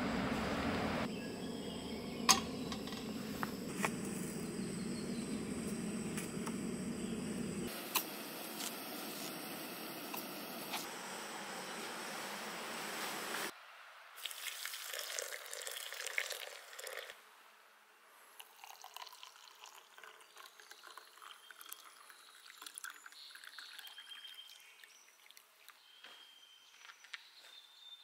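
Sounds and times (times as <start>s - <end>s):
coffee pouring into metal mug: 14.2s - 17.1s, 18.4s - 25.4s.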